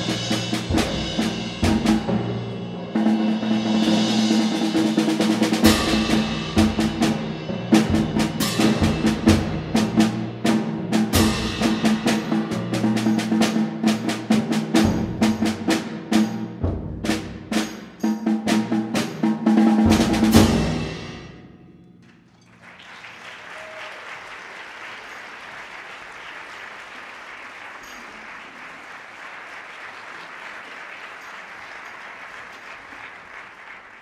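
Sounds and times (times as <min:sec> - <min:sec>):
timpani drums and cymbals: 0:00.0 - 0:21.8
audience applauding: 0:22.0 - 0:34.0.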